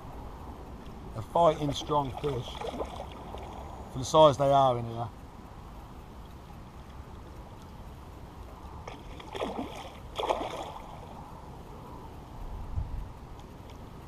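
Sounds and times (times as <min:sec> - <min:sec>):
fish splashing at the surface: 0:02.1 - 0:03.7, 0:08.8 - 0:11.1.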